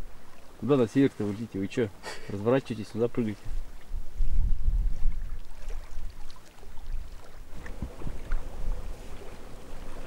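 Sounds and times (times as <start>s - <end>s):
wind buffeting microphone: 3.1s - 10.0s
faint steady hum: 5.5s - 10.0s.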